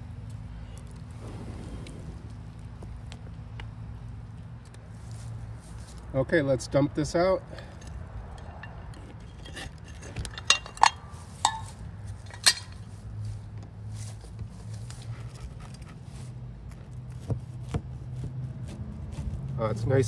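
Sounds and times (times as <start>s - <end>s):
metal pie iron clanking: 7.5s - 12.8s.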